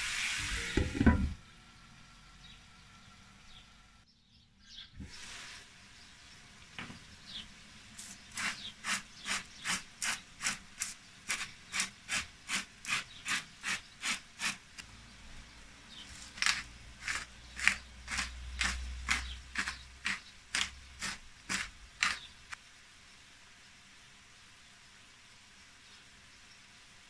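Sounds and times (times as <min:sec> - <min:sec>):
spice mill grinding: 0:08.1 - 0:14.6, 0:16.1 - 0:22.6.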